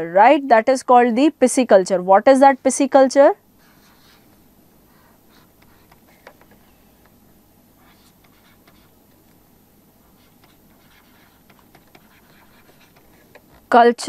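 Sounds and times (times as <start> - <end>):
stylus scratching on tablet: 3.6 - 7.2, 7.8 - 9.4, 10.0 - 14.0.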